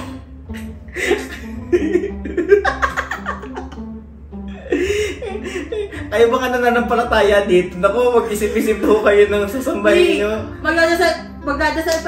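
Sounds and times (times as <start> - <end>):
light background music: 0.0 - 12.0
man and woman laughing: 0.5 - 6.1.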